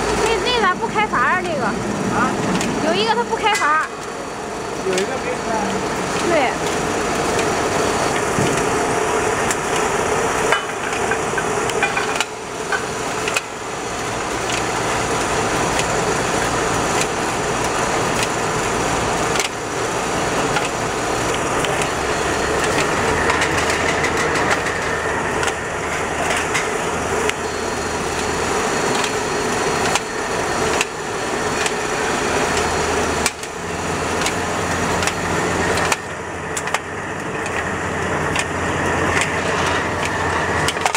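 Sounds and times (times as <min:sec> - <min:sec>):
steady machine noise: 0:00.0 - 0:40.9
cans clattering on conveyor: 0:04.7 - 0:40.9.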